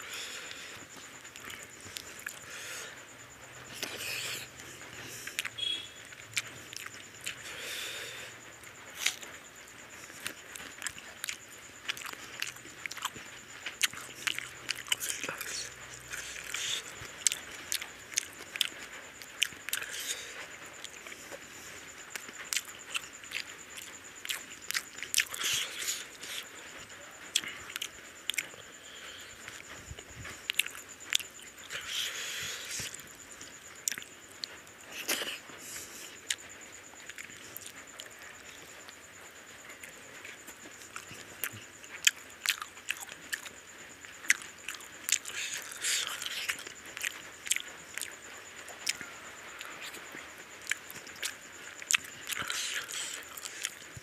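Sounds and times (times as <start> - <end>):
person chewing food: 0.0 - 54.0.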